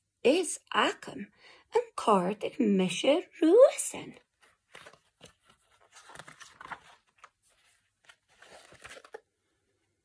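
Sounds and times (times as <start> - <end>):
book pages turning: 4.3 - 9.4.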